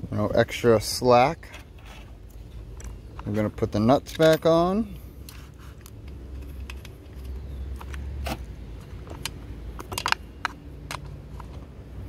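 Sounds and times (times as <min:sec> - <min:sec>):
metallic clicks of nuts fitted: 0:08.8 - 0:11.6.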